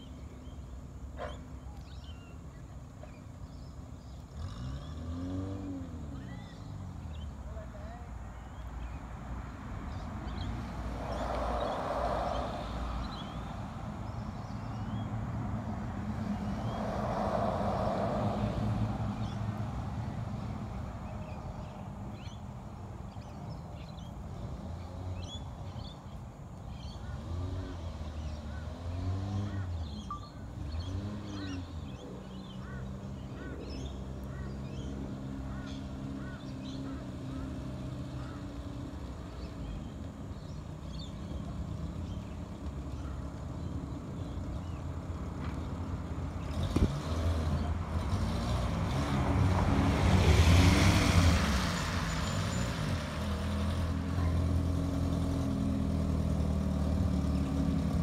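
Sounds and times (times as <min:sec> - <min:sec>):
birds chirping: 0:00.0 - 0:17.2, 0:18.8 - 0:49.0, 0:50.0 - 0:58.0
car engine driving: 0:02.8 - 0:23.2, 0:26.7 - 0:58.0.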